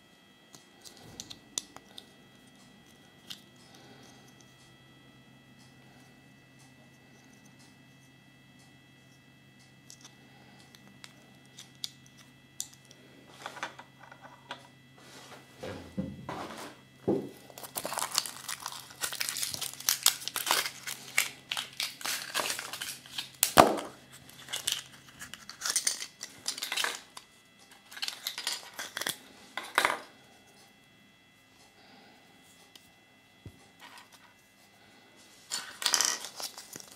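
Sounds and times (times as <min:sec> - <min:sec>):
foil wrapper crinkling: 0:17.4 - 0:27.2, 0:27.8 - 0:29.2, 0:35.5 - 0:36.9.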